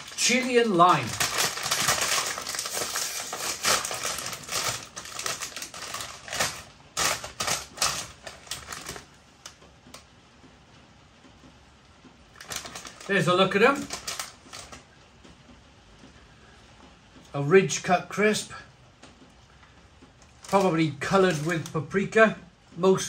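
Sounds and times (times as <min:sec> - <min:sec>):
crisp packet crinkling: 0:00.0 - 0:09.2, 0:12.4 - 0:14.8, 0:20.2 - 0:21.8.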